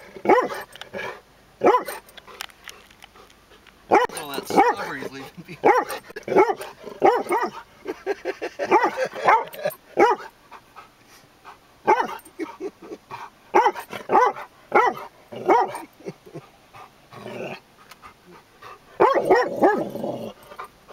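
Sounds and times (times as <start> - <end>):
dog barking: 0.3 - 0.7, 1.6 - 2.0, 3.9 - 5.0, 5.6 - 7.6, 8.6 - 10.3, 11.9 - 12.2, 13.5 - 15.9, 19.0 - 19.9.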